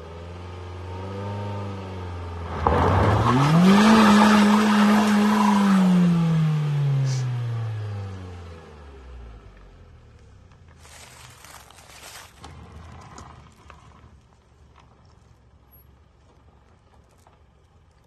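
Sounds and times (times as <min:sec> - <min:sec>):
off-road vehicle engine revving: 0:00.0 - 0:09.7, 0:10.8 - 0:14.2.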